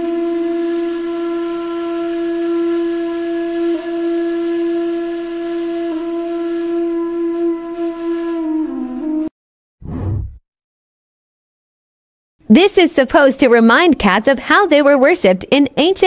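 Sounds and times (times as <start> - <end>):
flute-like long steady note: 0.0 - 9.3.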